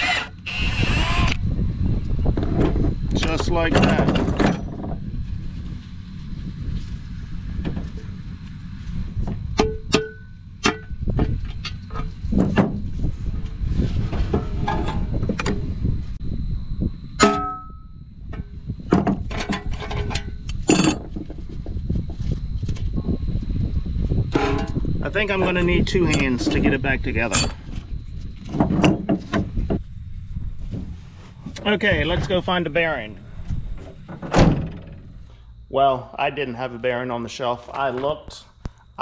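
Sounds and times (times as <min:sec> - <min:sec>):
low rumble: 0:01.4 - 0:35.8
metal parts knocking and scraping: 0:02.4 - 0:05.0, 0:14.1 - 0:15.6, 0:17.2 - 0:21.7, 0:24.3 - 0:24.8, 0:25.4 - 0:29.8
metal ringing: 0:09.6 - 0:11.0, 0:17.2 - 0:18.0.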